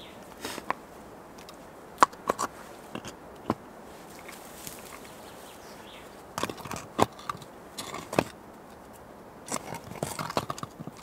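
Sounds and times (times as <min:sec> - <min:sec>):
moss and soil crunching: 0:00.0 - 0:11.0
stones knocking and scraping: 0:00.3 - 0:00.8, 0:01.4 - 0:05.1, 0:06.3 - 0:11.0.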